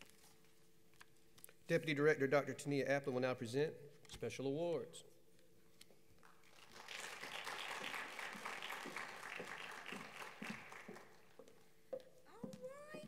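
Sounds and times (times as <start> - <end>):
audience applauding: 6.4 - 11.4.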